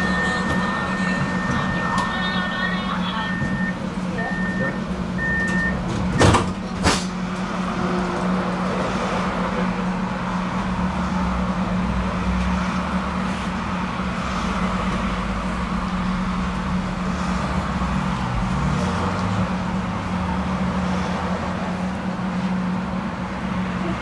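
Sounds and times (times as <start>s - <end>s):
tram door warning beeps: 0.0s - 6.8s
doors shutting with knocks: 5.8s - 7.2s.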